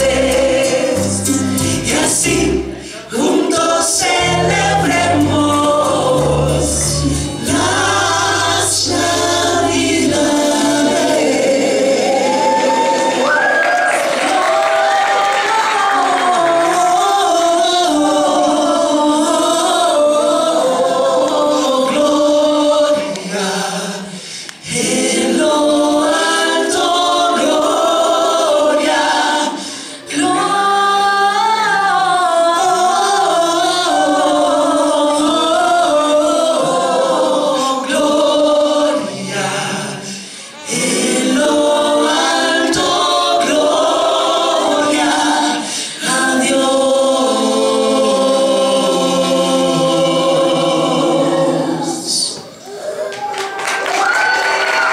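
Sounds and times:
vocal group singing in harmony: 0:00.0 - 0:54.9.

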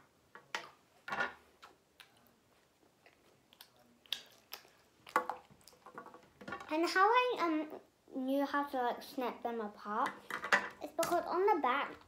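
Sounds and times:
child chewing chocolate: 0:01.5 - 0:06.1.

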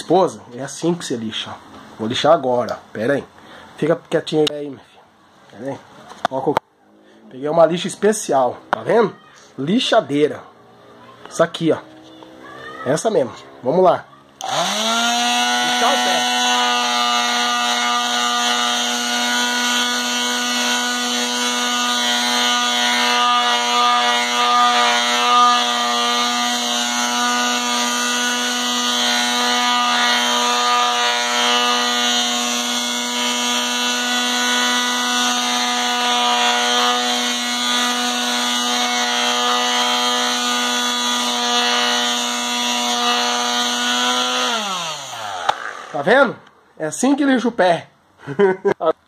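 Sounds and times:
electric sander humming: 0:13.1 - 0:46.2.

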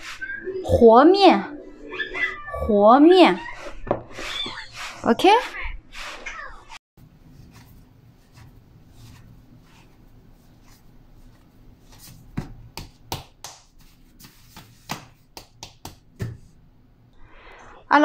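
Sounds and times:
hands kneading dough: 0:03.6 - 0:16.6
sharp pats on dough: 0:12.0 - 0:16.5.

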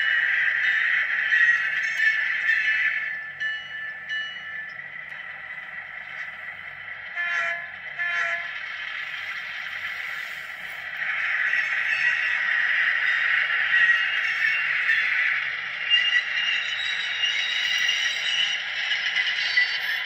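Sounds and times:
model locomotive horn blasts: 0:07.1 - 0:08.6.

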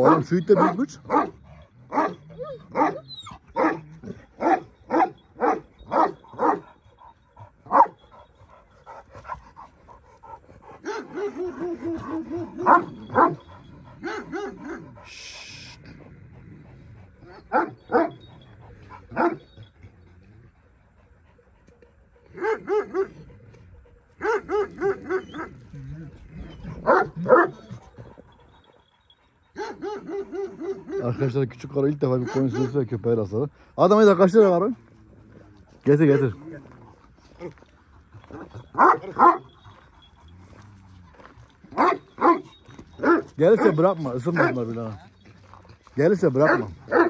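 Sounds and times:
dog drawn-out cry: 0:00.0 - 0:07.0, 0:24.2 - 0:28.8, 0:29.5 - 0:31.2, 0:38.2 - 0:41.1
dogs barking deeply: 0:00.0 - 0:20.1, 0:22.2 - 0:28.9, 0:29.5 - 0:33.3, 0:35.8 - 0:47.0.

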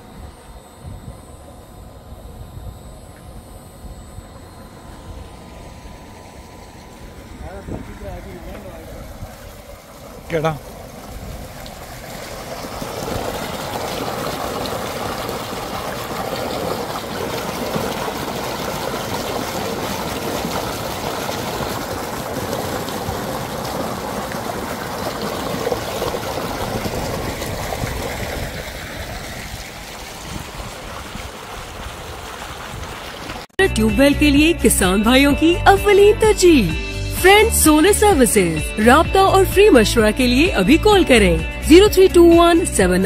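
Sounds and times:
water splashing into concrete tank: 0:08.5 - 0:33.5.

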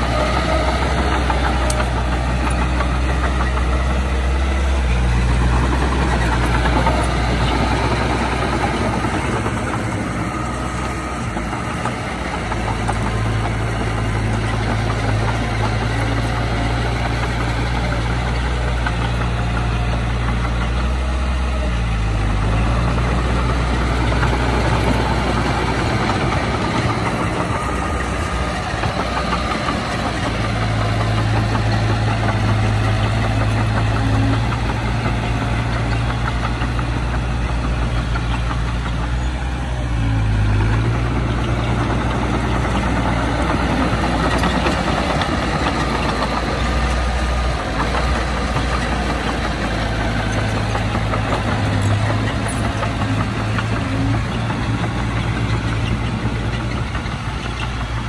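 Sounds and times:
heavy diesel machinery running: 0:00.0 - 0:58.0.

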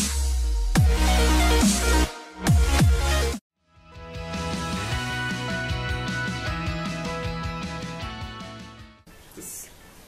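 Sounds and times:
electronic dance music: 0:00.0 - 0:03.4.

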